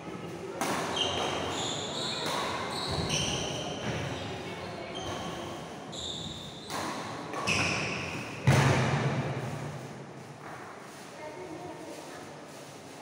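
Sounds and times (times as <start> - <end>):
shoes squeaking on wooden floor: 0.9 - 6.8, 7.4 - 8.2
loud thud: 8.4 - 9.4.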